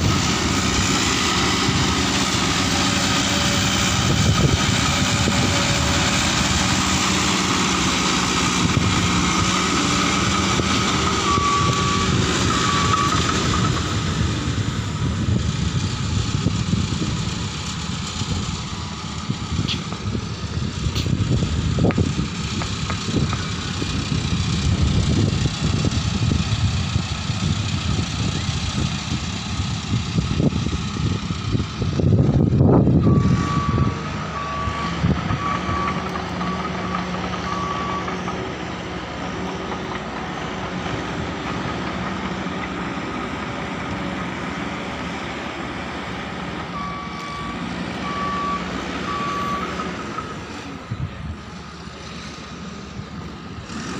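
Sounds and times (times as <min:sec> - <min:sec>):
diesel engine running: 0:00.0 - 0:53.9
reversing alarm beeping: 0:08.7 - 0:13.8, 0:32.9 - 0:38.3, 0:46.7 - 0:50.0.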